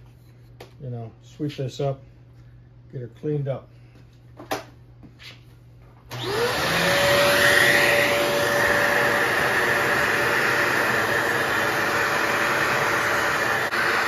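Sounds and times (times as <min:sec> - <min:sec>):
vacuum cleaner motor whine: 0:06.1 - 0:14.0.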